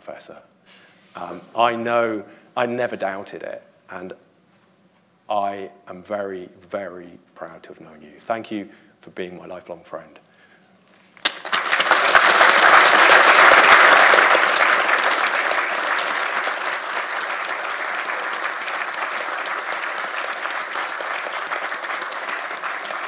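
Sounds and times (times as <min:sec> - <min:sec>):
audience applauding: 0:11.2 - 0:23.0.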